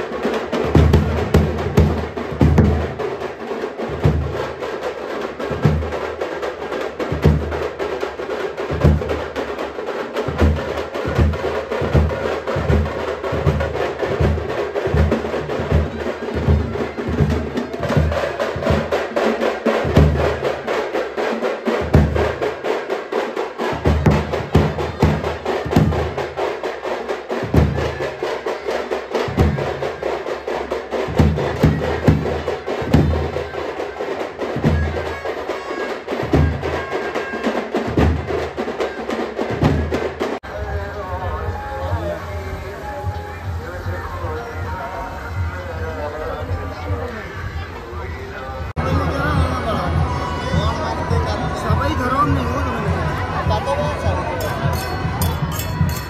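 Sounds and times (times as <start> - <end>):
rattle of smaller drums: 0.0 - 56.0
bass drums beating: 0.6 - 3.3, 10.2 - 19.1, 23.8 - 26.3, 48.6 - 56.0.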